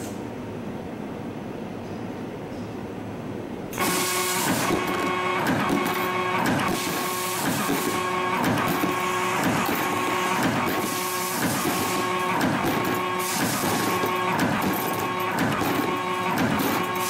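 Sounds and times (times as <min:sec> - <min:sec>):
machine clicks: 0:03.8 - 0:17.0
machine motors whining: 0:03.8 - 0:17.0.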